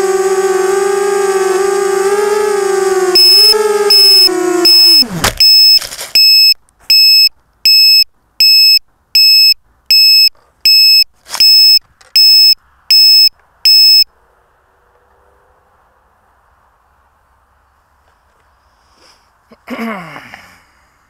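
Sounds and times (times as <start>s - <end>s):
drone motors whining: 0.0s - 5.8s
high electronic beep: 3.2s - 14.1s.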